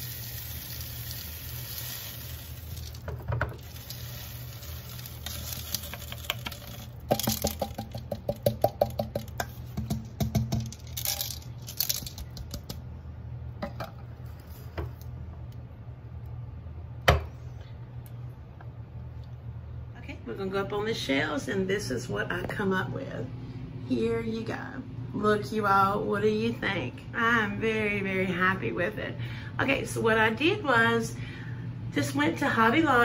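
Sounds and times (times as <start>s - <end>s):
pellets pattering into glass jar: 0.0s - 9.0s, 10.6s - 12.8s.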